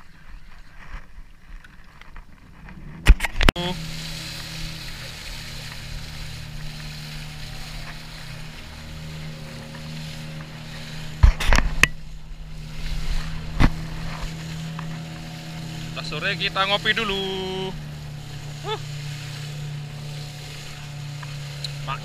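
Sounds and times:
wind noise: 0.0 - 16.0
boat engine humming: 0.0 - 22.0
water noise: 0.0 - 22.0.

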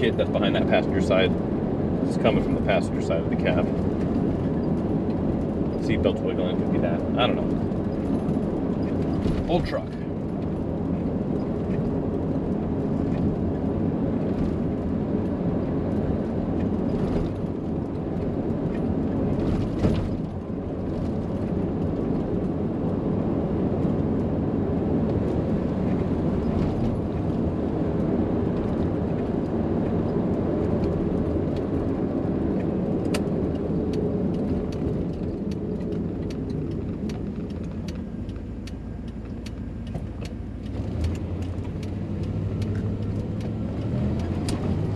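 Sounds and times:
engine and road noise in cab: 0.0 - 44.9.

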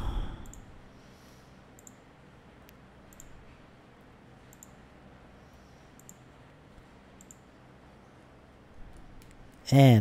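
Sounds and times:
low steady hum: 0.0 - 10.0
computer mouse clicks: 0.4 - 0.7, 1.7 - 3.6, 4.4 - 4.9, 5.5 - 7.5, 8.9 - 9.6.

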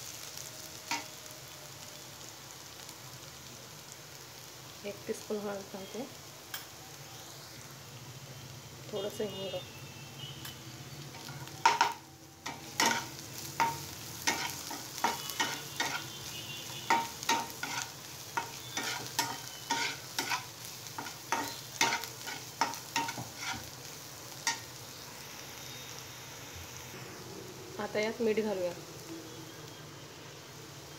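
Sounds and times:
onions sizzling: 0.0 - 30.9
spatula scraping and knocking pan: 11.6 - 16.1, 16.9 - 23.7.

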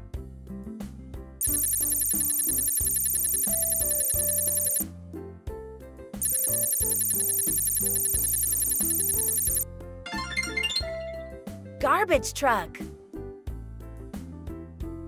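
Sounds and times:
children's music with bass line: 1.4 - 4.8, 6.2 - 12.8
high electronic ringing: 1.4 - 4.8, 6.2 - 9.6.

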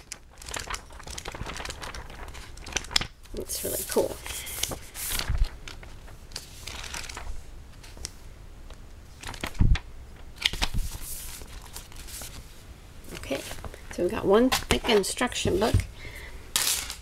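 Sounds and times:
pages flipping: 0.0 - 8.2, 9.2 - 9.8, 10.4 - 12.5, 16.6 - 17.0.

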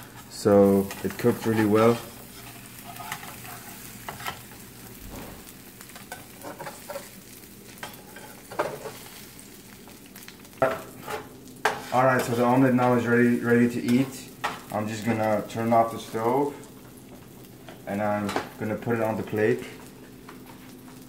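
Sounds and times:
omelette sizzling in pan: 0.0 - 21.0
utensils scraping and tapping pan: 0.8 - 4.6, 6.0 - 7.1, 7.8 - 9.0, 10.6 - 12.4.

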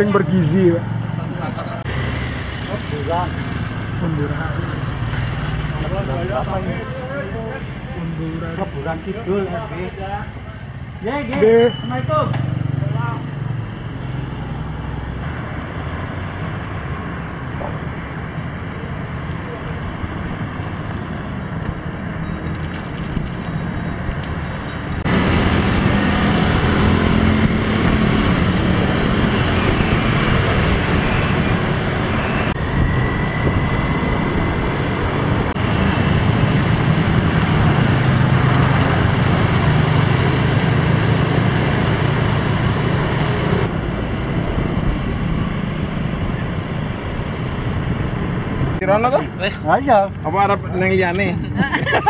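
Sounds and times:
cars and motorbikes passing: 0.0 - 52.0
wind rushing over microphone: 19.9 - 49.4.

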